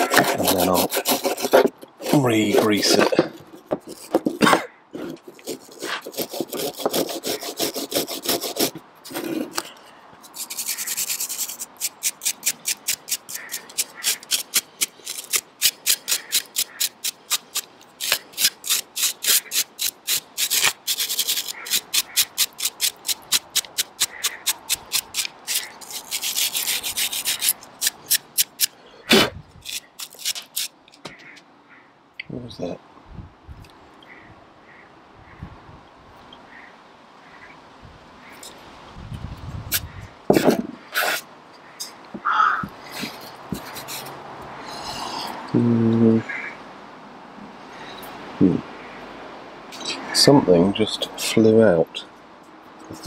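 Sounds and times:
wire brush scrubbing rusty metal: 0.0s - 3.2s, 5.2s - 28.7s, 29.6s - 30.8s, 42.9s - 45.2s.

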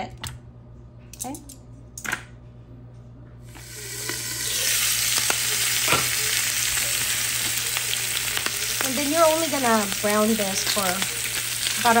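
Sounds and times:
meat sizzling in hot oil: 3.6s - 12.0s.

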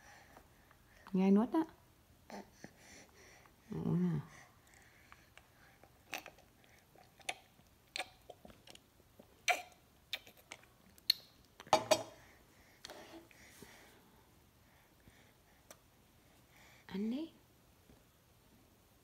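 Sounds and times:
baby chewing with lip smacks: 4.6s - 13.4s.

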